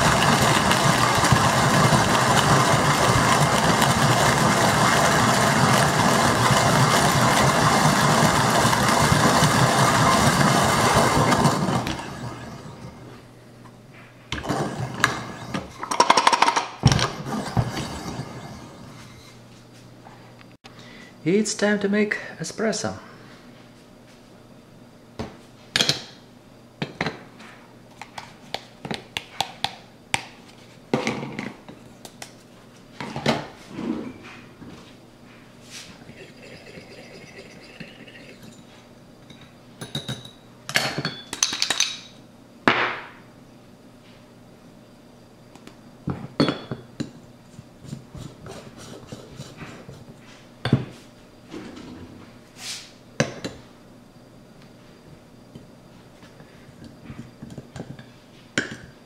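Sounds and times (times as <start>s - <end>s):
metal scrape: 17.1s - 19.4s.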